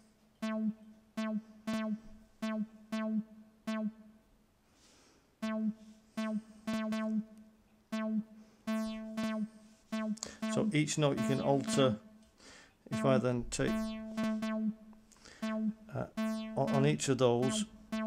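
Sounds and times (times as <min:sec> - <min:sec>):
short synth notes on one pitch: 0:00.4 - 0:04.0, 0:05.4 - 0:07.4, 0:08.0 - 0:12.2, 0:13.0 - 0:18.0.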